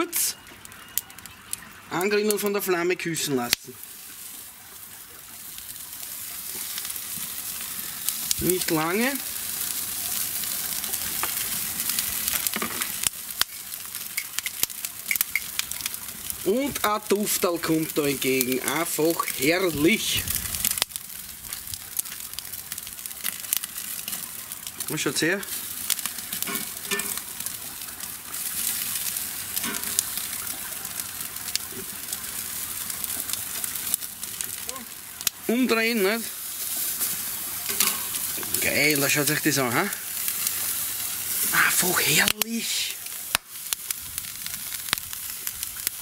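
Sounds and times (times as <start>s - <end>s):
steaks sizzling on grill: 0.0s - 46.0s
sharp pops: 12.2s - 16.0s, 43.2s - 43.9s.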